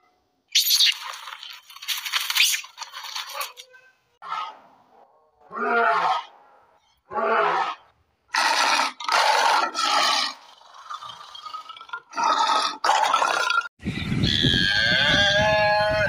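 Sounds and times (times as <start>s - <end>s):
wind noise: 13.8s - 16.0s.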